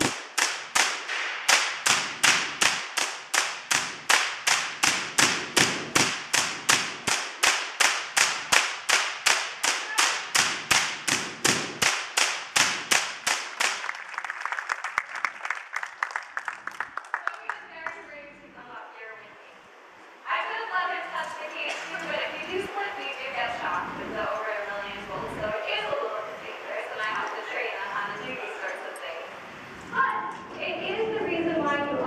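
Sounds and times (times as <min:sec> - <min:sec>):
electric sparks cracking: 0:00.0 - 0:13.8.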